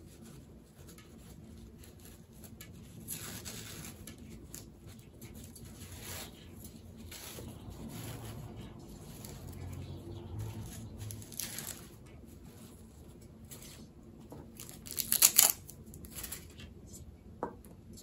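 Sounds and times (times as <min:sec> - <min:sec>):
crinkly stretch of packaging: 0:03.0 - 0:12.8, 0:14.5 - 0:16.6
plastic packaging rustling: 0:14.4 - 0:16.6.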